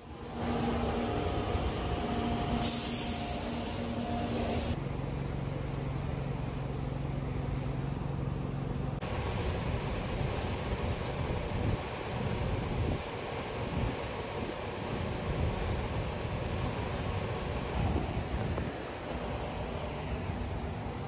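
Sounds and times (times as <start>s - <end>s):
engines and machinery rumbling: 0.0s - 21.0s
loud hiss: 0.3s - 4.8s, 9.0s - 13.2s.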